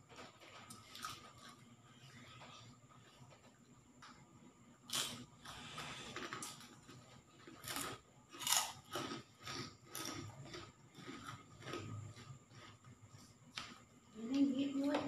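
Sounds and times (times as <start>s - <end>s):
chewing: 4.9s - 13.9s.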